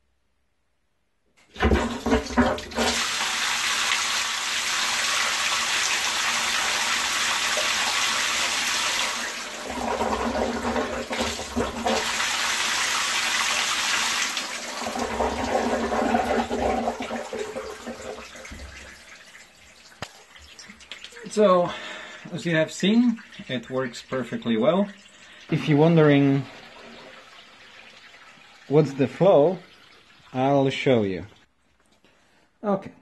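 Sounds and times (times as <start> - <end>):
coolant rushing and splashing: 1.6 - 21.4.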